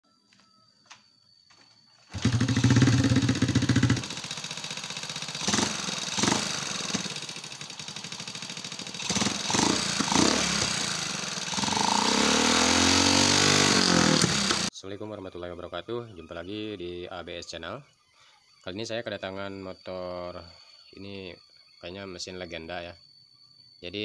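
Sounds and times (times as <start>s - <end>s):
motorcycle engine running rough: 2.1s - 14.7s
ticking engine knock: 2.1s - 14.7s.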